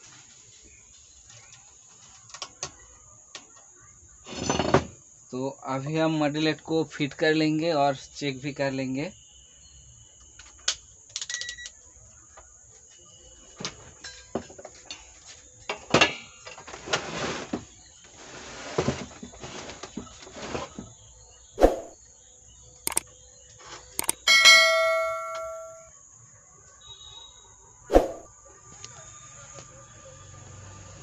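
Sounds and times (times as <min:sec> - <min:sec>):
ringing metallic clang: 0:24.0 - 0:25.9.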